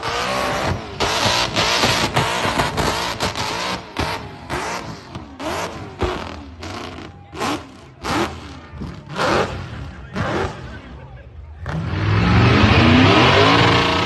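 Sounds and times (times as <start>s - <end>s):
car engine revving hard: 0.0s - 11.0s, 11.6s - 14.0s.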